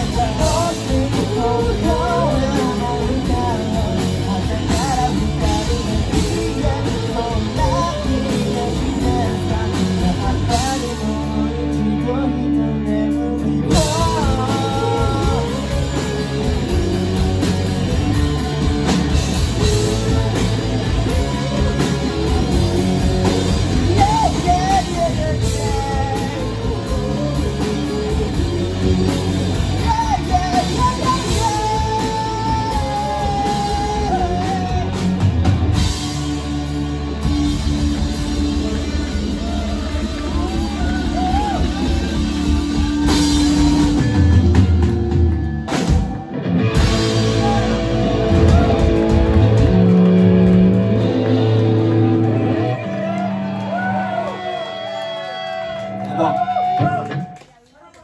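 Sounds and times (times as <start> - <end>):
man singing lead vocal: 0.0 - 36.1, 38.0 - 44.8
drum kit: 0.0 - 57.4
live rock band playing: 0.0 - 57.5.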